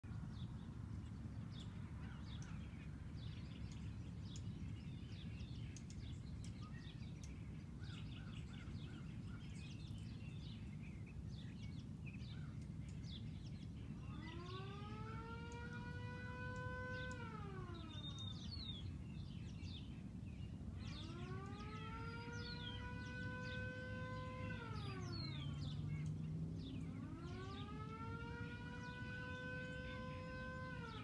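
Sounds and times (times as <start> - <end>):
small birds chirping: 0.1 - 31.0
siren winding up: 14.0 - 18.4, 20.8 - 25.6, 26.9 - 31.0
low outdoor rumble: 15.6 - 31.0.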